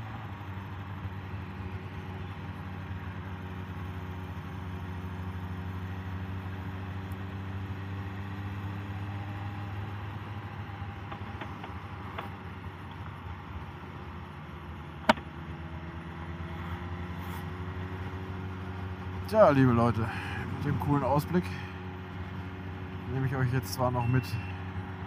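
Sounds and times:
wind and road noise: 0.0 - 25.0
motorcycle engine running: 13.8 - 25.0.

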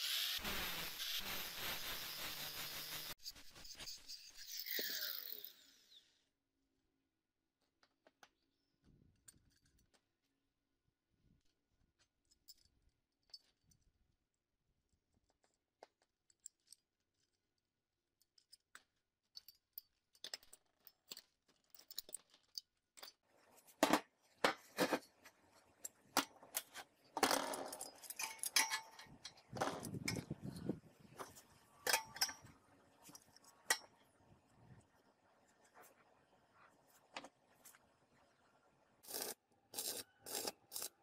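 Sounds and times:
metal clinks and knocks: 18.2 - 23.2, 24.6 - 34.0.

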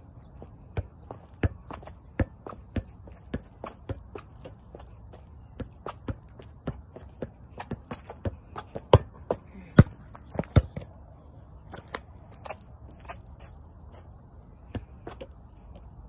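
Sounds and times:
sneaker steps on concrete: 0.4 - 10.9, 11.7 - 14.0
ball thudding off feet: 0.7 - 10.9.

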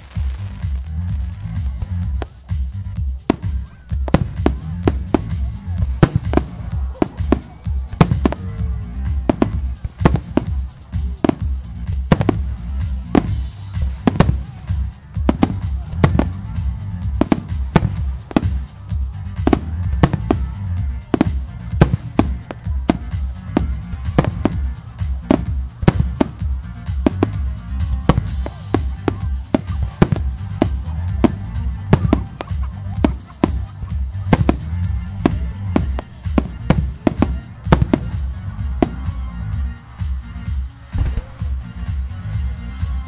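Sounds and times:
music: 0.0 - 43.0.

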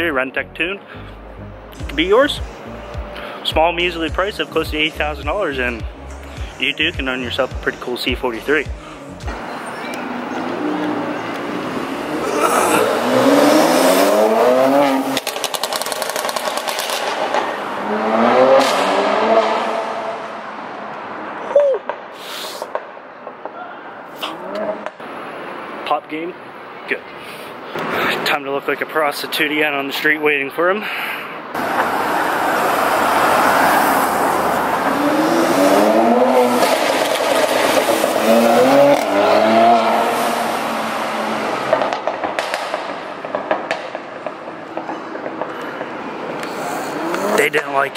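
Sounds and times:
car accelerating past: 9.4 - 21.1, 31.6 - 43.0
exhaust crackles and pops: 15.1 - 17.5, 41.7 - 47.6.

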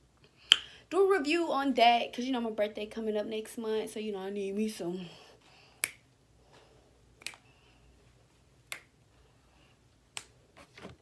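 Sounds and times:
finger snaps: 0.5 - 0.7, 5.8 - 6.1, 7.2 - 7.5, 8.7 - 9.0.

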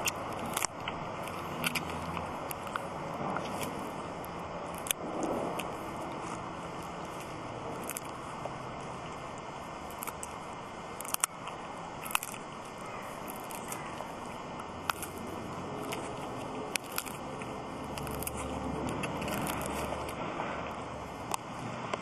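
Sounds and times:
dog crunching wooden stick: 0.0 - 22.0.

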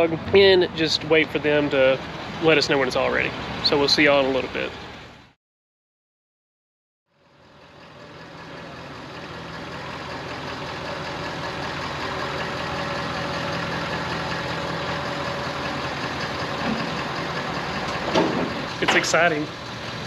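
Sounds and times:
pickup engine idling: 7.2 - 20.0.

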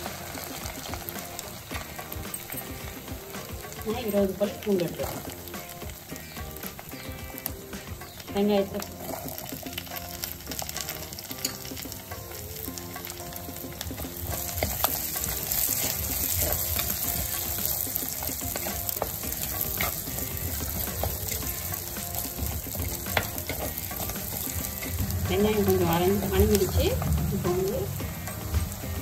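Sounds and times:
vegetables sizzling in hot oil: 0.0 - 29.0
spatula scraping and knocking pot: 12.9 - 29.0.

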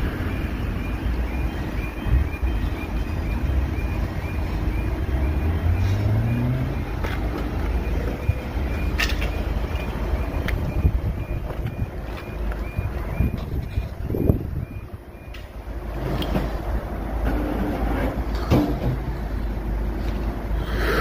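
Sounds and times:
level crossing alarm pips: 0.0 - 15.8
road traffic rumble: 0.0 - 21.0
vehicle engine pulling away: 3.4 - 8.9.

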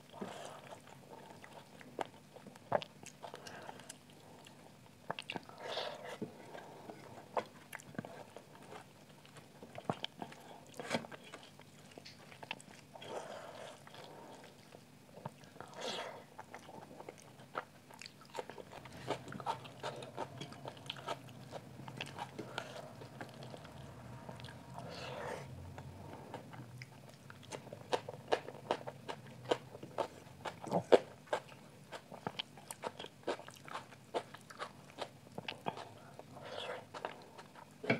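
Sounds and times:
chewing and wet mouth clicks: 11.4 - 12.9.

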